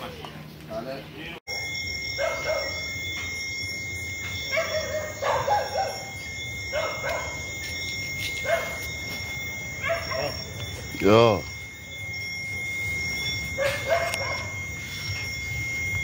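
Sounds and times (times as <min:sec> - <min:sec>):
steady high-pitched whine: 0:00.0 - 0:16.0
dog barking: 0:02.2 - 0:03.0, 0:04.5 - 0:07.5, 0:08.4 - 0:08.9, 0:09.8 - 0:10.4, 0:13.6 - 0:14.6.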